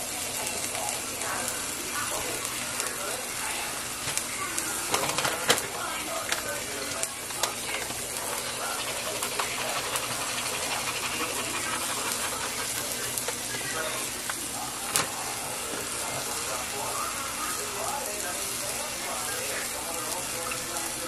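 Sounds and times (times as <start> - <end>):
soup pot hissing: 5.8 - 19.0.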